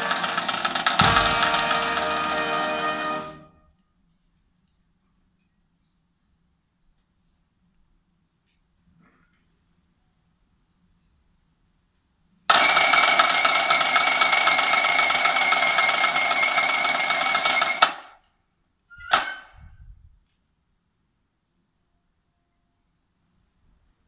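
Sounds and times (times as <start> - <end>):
marching snare drum roll: 0.0 - 3.6
sharp snare drum stroke: 0.8 - 3.5.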